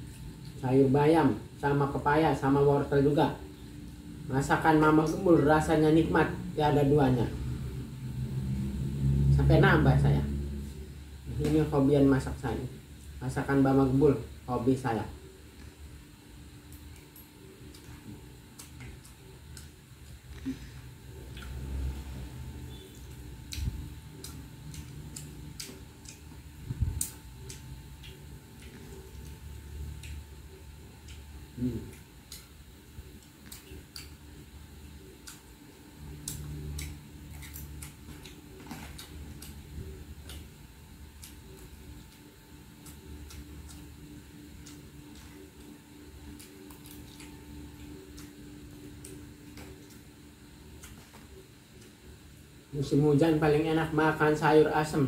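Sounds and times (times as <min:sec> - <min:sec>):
person chewing food: 0:00.0 - 0:00.6, 0:15.2 - 0:52.7
faint steady hum: 0:00.0 - 0:55.0.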